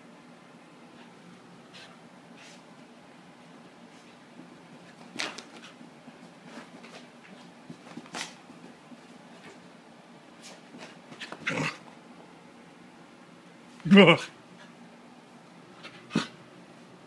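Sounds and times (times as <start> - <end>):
low steady hum: 0.0 - 17.0
dog scuffling on carpet: 3.8 - 11.5.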